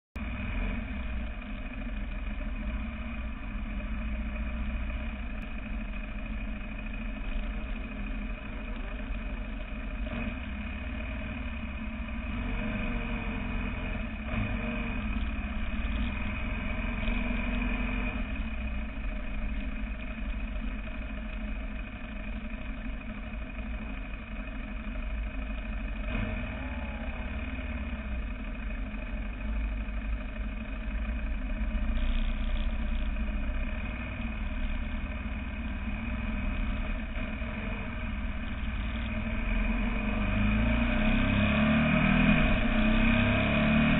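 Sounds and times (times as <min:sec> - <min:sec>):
motorcycle engine running: 0:00.2 - 0:43.9.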